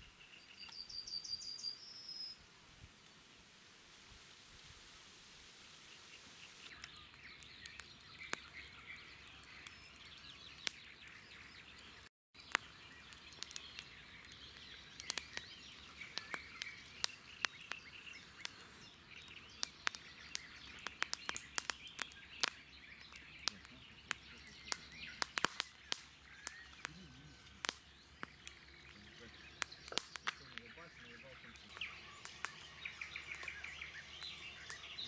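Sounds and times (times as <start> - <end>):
birds chirping and singing: 0.0 - 2.4, 6.4 - 35.0
short sharp clicks and pops: 12.4 - 30.8.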